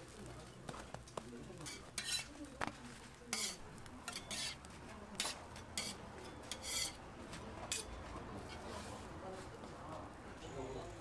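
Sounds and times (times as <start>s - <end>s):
tongs scraping a steel griddle: 1.6s - 2.4s, 3.3s - 7.0s, 7.7s - 9.0s.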